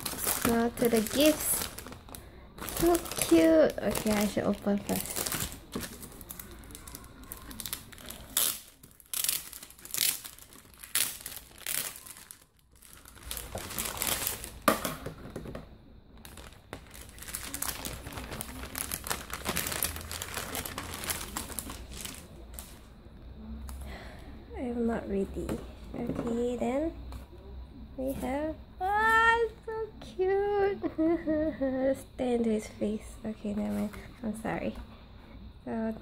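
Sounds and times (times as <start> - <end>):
plastic packaging crinkling: 0.0 - 15.2, 16.2 - 22.9.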